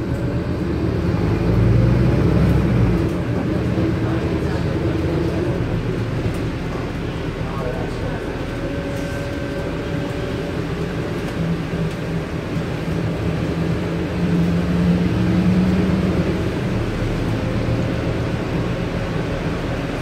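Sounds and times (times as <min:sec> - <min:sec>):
bus diesel engine drone: 0:00.0 - 0:20.0.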